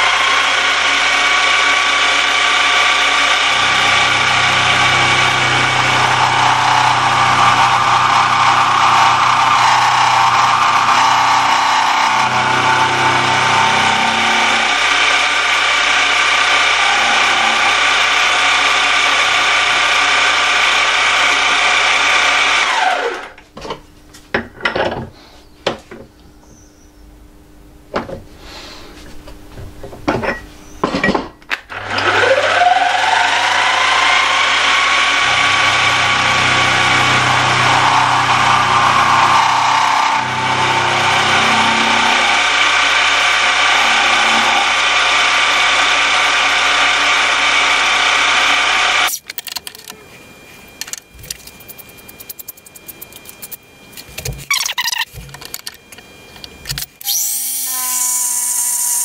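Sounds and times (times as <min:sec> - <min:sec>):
milling machine spindle whine: 0:00.0 - 0:23.3, 0:31.8 - 0:59.0
end mill cutting rumble: 0:03.4 - 0:14.9, 0:35.2 - 0:42.6.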